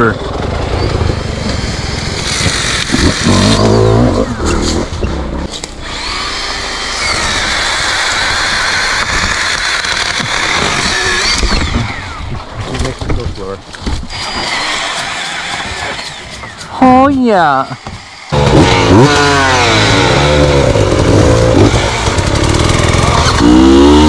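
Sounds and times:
chainsaw cutting wood: 0:01.4 - 0:04.8, 0:05.6 - 0:12.4, 0:14.0 - 0:17.0, 0:17.7 - 0:24.0.

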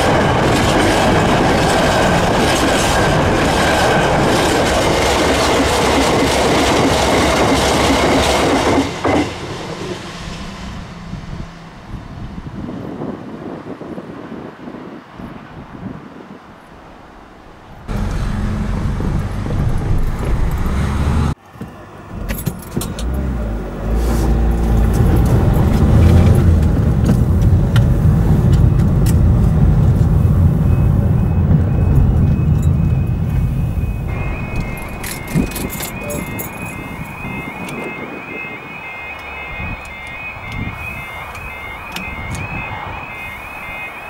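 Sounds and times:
car engine and road rumble: 0:09.0 - 0:13.9, 0:16.7 - 0:44.0
level crossing warning alarm: 0:28.4 - 0:44.0.

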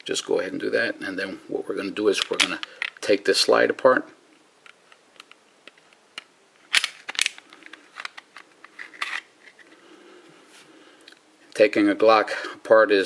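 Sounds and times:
metallic clicks and clacks of pistol: 0:04.6 - 0:09.3.

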